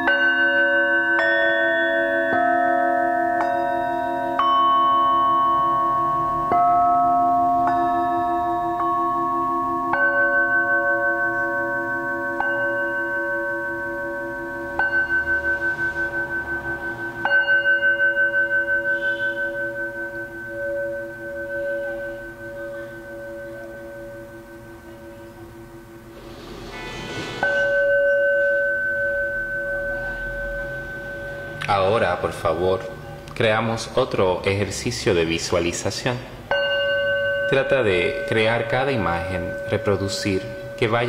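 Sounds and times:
metal singing bowls struck: 0.0s - 33.2s, 36.4s - 41.0s.

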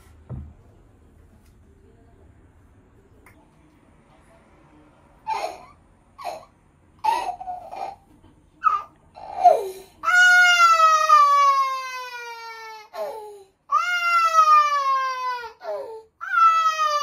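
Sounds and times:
toddler crying: 8.6s - 17.0s.

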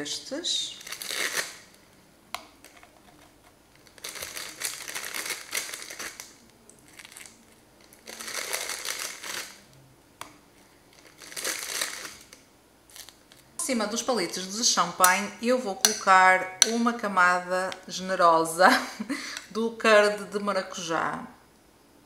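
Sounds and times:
plastic packaging crinkling: 0.7s - 1.9s, 2.6s - 9.8s, 10.5s - 13.6s.

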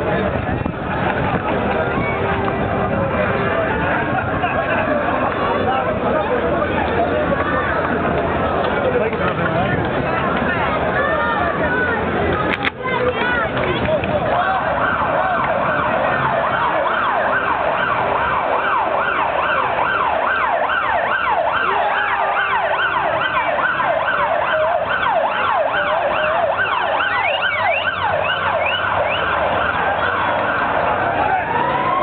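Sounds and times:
crowd hubbub: 0.0s - 32.0s
emergency vehicle siren: 13.8s - 32.0s.

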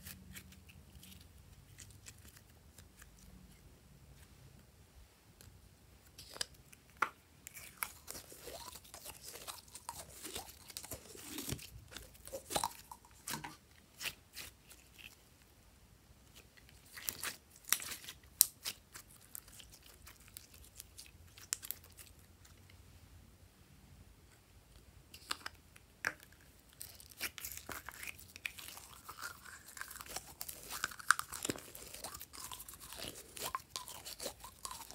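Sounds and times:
slime clicking and squeaking: 25.2s - 34.9s.

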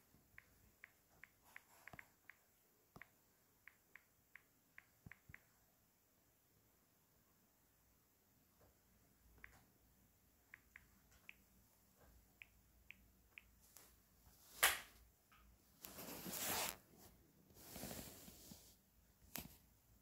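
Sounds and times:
phone rustling and scraping: 15.8s - 16.9s.

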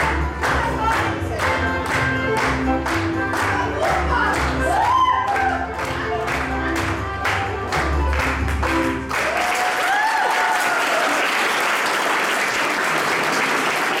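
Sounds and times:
dance music: 0.0s - 9.4s
applause: 0.0s - 14.0s.

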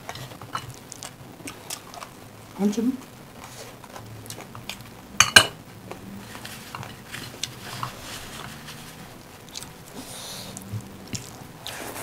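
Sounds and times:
wet squish of food mixed by hand: 5.8s - 12.0s
chewing and lip smacks: 9.4s - 9.8s.

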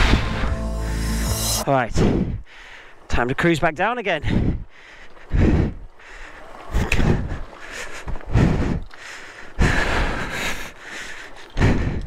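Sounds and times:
heavy breathing: 4.2s - 12.0s.

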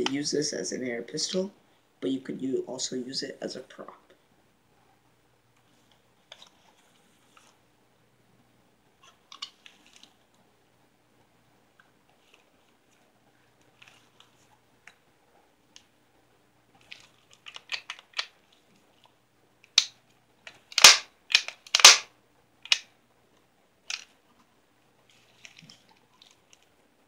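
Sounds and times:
air pistol clicks: 20.7s - 22.1s
sharp loud clacks: 20.8s - 22.1s.

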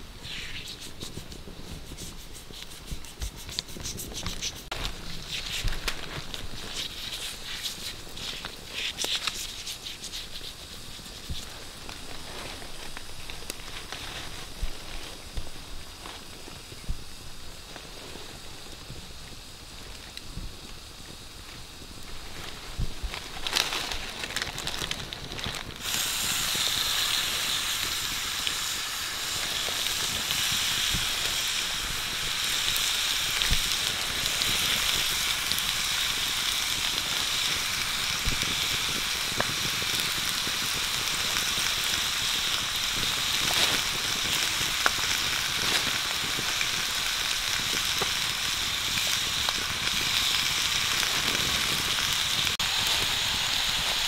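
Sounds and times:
intestines sizzling on hot stone: 0.0s - 54.0s.

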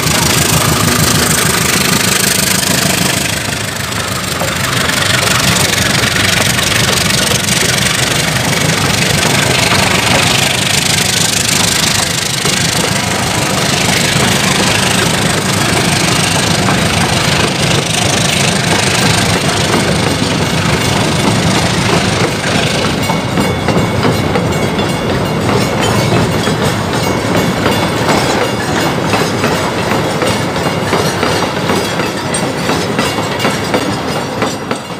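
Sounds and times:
train wheels rumbling on rails: 0.0s - 34.9s
wheels clicking over rail joints: 0.0s - 34.9s.

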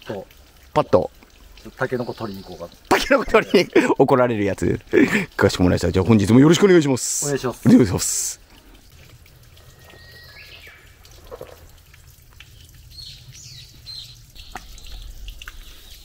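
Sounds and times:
birds chirping: 1.6s - 3.9s, 9.6s - 11.4s, 12.5s - 16.0s.

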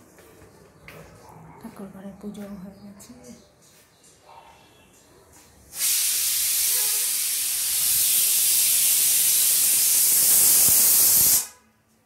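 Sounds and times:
pressure cooker steam hiss: 5.7s - 11.6s.

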